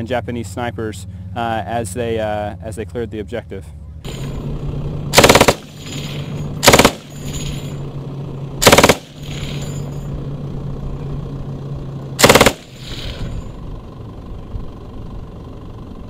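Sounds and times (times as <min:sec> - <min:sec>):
low steady hum: 0:00.0 - 0:16.0
machine gun bursts: 0:05.2 - 0:07.5, 0:08.6 - 0:09.6, 0:12.2 - 0:13.2.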